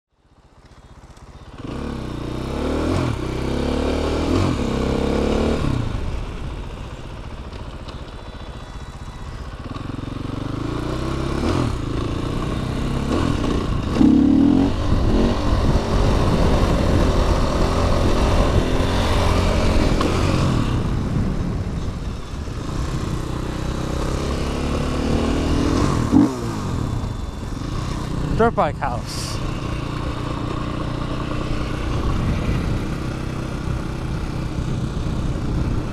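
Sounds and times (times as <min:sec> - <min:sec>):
dirt bike engine revving: 0:01.5 - 0:06.2, 0:08.9 - 0:21.4, 0:22.0 - 0:35.9
wind noise: 0:13.2 - 0:29.9, 0:31.4 - 0:35.9.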